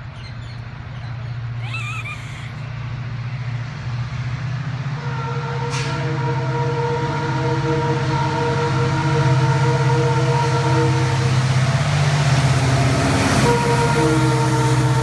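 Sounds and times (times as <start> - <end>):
diesel locomotive engine drone: 0.0 - 15.0
locomotive air horn blast: 4.9 - 15.0.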